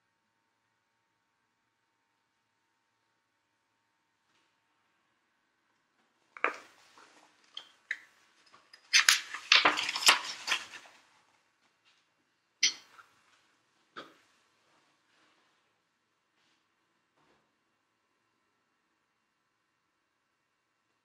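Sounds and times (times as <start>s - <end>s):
objects clicking and clattering: 7.5s - 10.9s.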